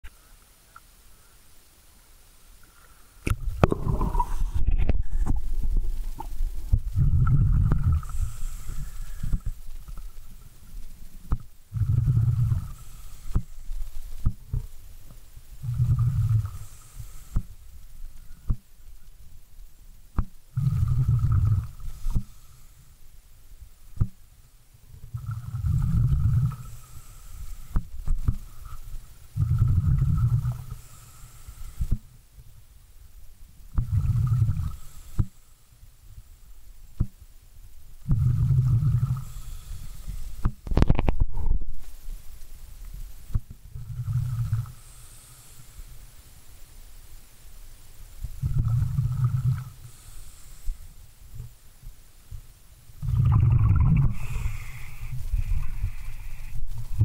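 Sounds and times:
regulator exhaust bubbles: 3.2 - 10.1, 53.0 - 54.5
underwater regulator bubbling: 3.3 - 14.8, 15.6 - 17.6, 20.2 - 22.4, 25.0 - 31.0, 33.7 - 35.3, 38.0 - 41.9, 43.3 - 45.4, 48.3 - 50.3, 53.0 - 57.0.

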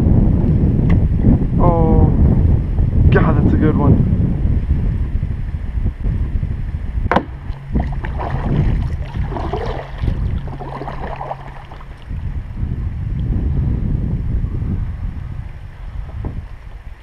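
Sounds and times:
steady low hum: 0.0 - 17.0
wind rumbling on microphone: 0.0 - 17.0
water sloshing against kayak hull: 7.1 - 12.2.

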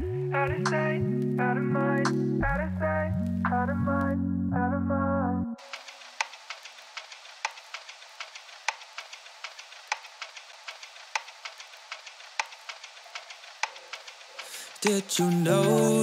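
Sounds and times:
vinyl record crackle: 0.0 - 4.3, 5.6 - 16.0.

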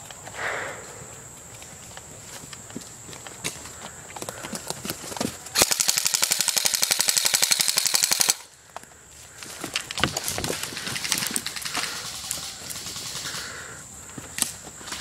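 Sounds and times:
airsoft rifle full-auto burst: 5.6 - 8.5
clicks and rustling: 8.7 - 13.3.

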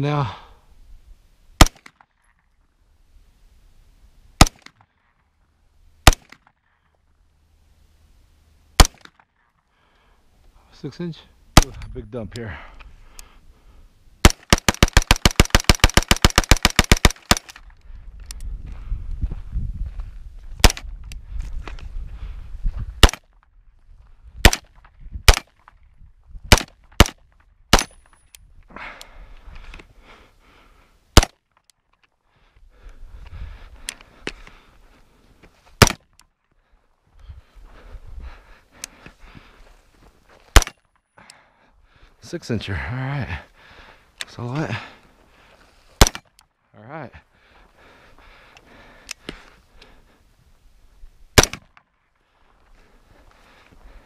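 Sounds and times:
pistol shots: 1.6 - 2.0, 4.4 - 4.8, 6.0 - 6.4, 8.8 - 9.1, 14.2 - 17.6, 23.0 - 23.2, 24.4 - 25.6, 26.5 - 28.0, 35.8 - 36.0, 40.5 - 40.8, 46.0 - 46.3, 51.4 - 51.7.

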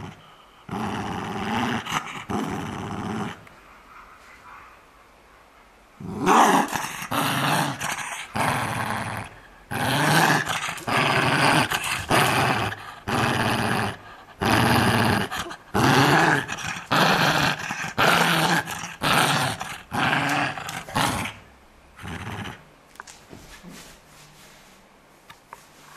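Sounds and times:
dog growling: 0.0 - 3.5, 6.0 - 22.7.

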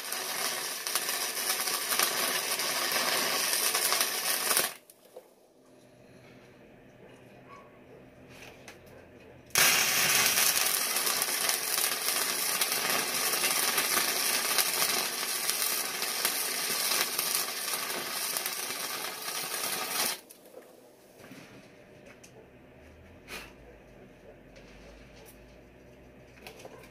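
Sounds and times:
arc welder crackling: 0.0 - 5.2, 9.5 - 20.5.

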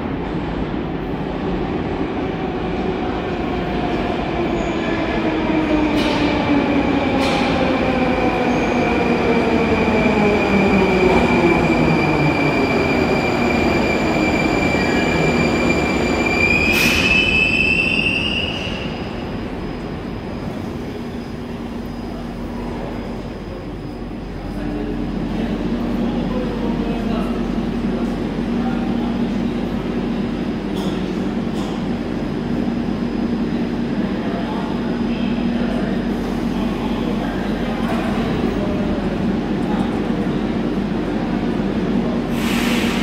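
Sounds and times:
metro train braking: 0.0 - 43.0
high brake squeal: 12.8 - 19.2, 42.4 - 43.0.

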